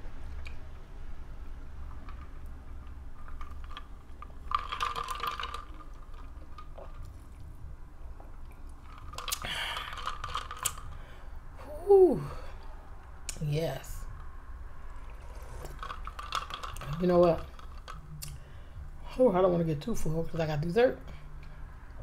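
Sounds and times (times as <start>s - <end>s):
person exhaling ahh: 9.4s - 10.1s
slurping a drink: 14.8s - 18.4s.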